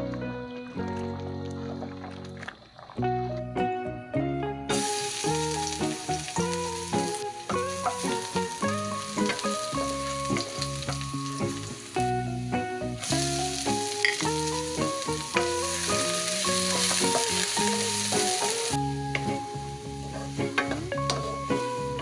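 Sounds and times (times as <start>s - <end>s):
plucked background music: 0.0s - 22.0s
garlic and onion sizzling in oil: 4.7s - 22.0s.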